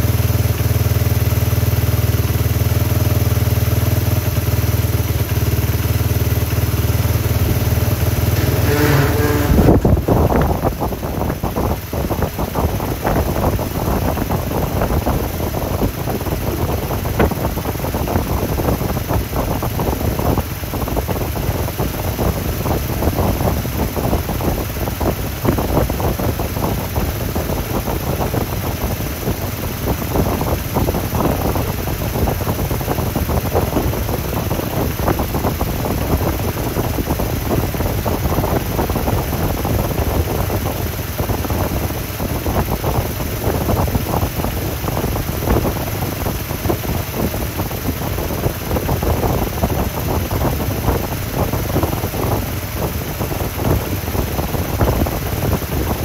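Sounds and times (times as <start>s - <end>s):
motorcycle engine idling: 0.0s - 56.0s.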